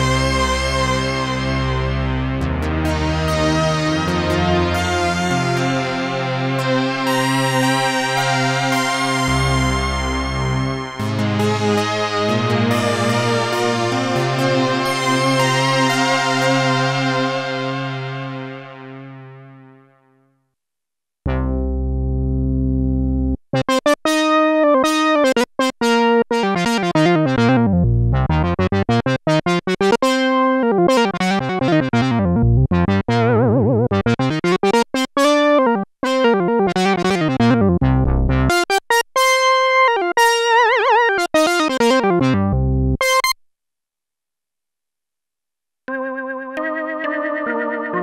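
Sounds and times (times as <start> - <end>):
plucky synth runs: 0.1 - 19.8, 21.3 - 23.8, 26.7 - 39.3, 40.2 - 43.4.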